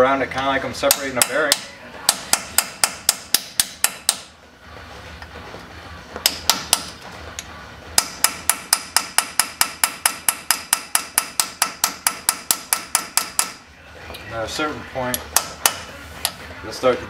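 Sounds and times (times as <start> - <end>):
hammer tapping metal punch: 0.8 - 4.3, 6.2 - 7.0, 8.0 - 13.6, 15.1 - 16.4.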